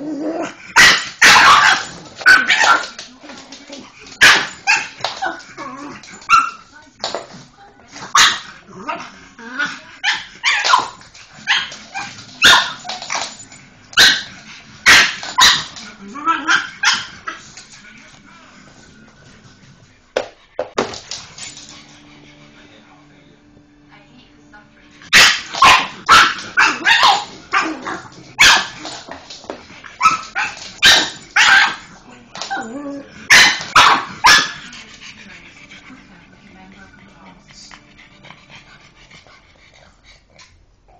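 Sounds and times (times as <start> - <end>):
dog barking: 0.8 - 2.9, 4.2 - 5.0, 8.1 - 8.5, 10.0 - 12.9, 14.0 - 15.8, 16.4 - 17.2, 25.1 - 28.8, 30.0 - 31.9, 33.3 - 34.6.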